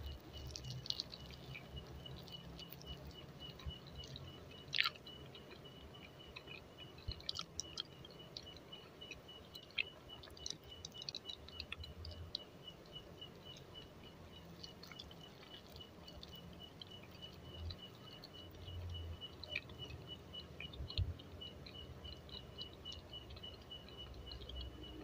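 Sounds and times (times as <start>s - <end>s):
faint high chirp pulsing: 0.0s - 25.0s
quiet chewing: 0.0s - 25.0s.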